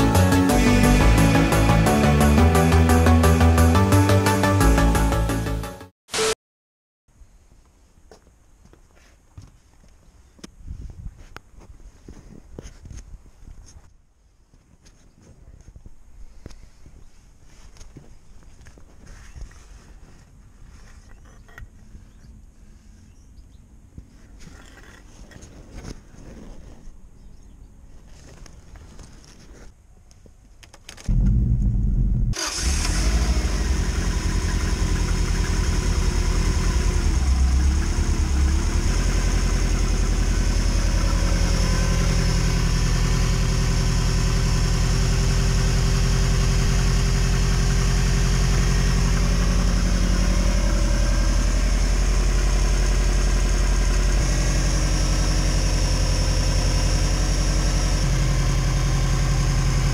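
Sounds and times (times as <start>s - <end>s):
car engine idling: 0.0s - 4.8s, 31.1s - 59.9s
car engine starting: 0.0s - 5.7s, 31.0s - 59.9s.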